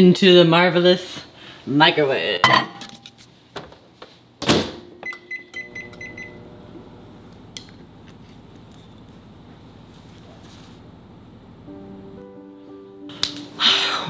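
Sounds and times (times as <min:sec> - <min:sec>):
microwave humming: 0:04.4 - 0:13.1.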